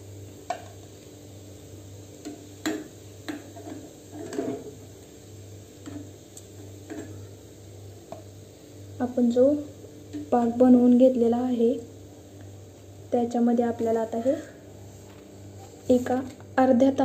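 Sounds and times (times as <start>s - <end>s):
low steady hum: 0.0s - 17.0s
oil sizzling: 0.0s - 17.0s.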